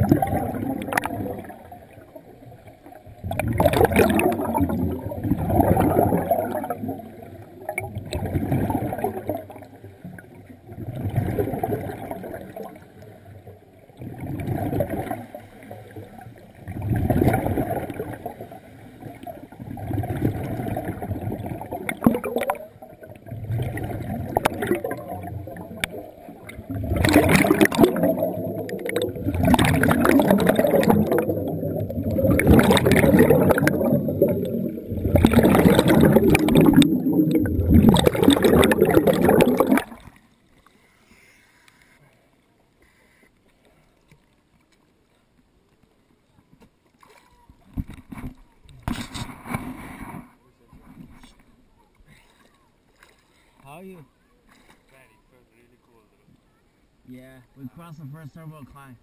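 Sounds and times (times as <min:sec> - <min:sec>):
underwater bubbles gurgling: 0:00.0 - 0:40.3.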